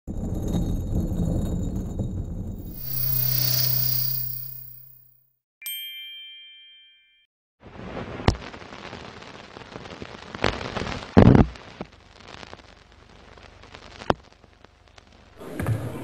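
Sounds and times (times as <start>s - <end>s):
film crackling hiss: 7.9s - 15.4s.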